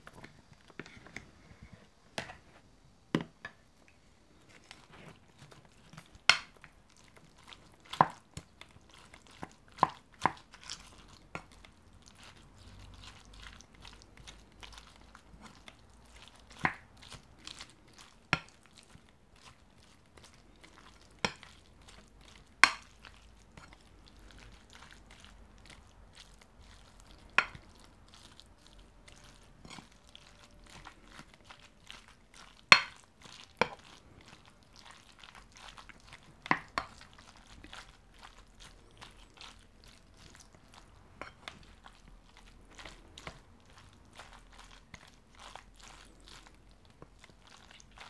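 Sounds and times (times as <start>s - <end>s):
spoon stirring in a bowl: 4.4s - 48.0s.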